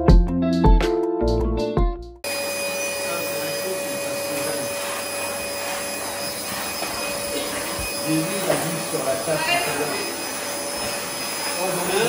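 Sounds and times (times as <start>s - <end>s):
guitar and piano music: 0.0s - 4.7s
vacuum cleaner motor whine: 2.2s - 12.0s.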